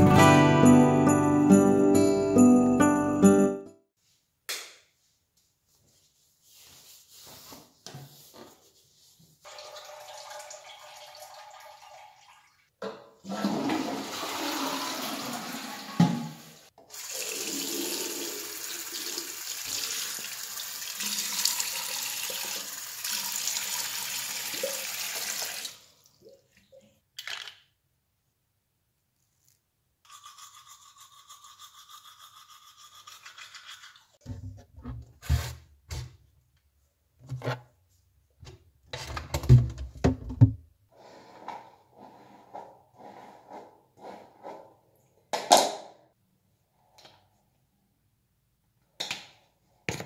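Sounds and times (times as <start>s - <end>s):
toilet flushing: 9.5s - 26.4s.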